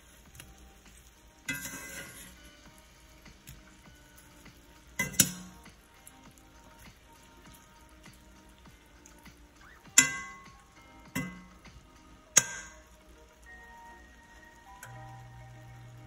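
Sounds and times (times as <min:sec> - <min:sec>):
steak sizzling in oil: 0:00.0 - 0:16.0
metal utensil scraping pan: 0:01.3 - 0:02.8, 0:04.2 - 0:05.7, 0:09.9 - 0:11.6, 0:12.4 - 0:12.9.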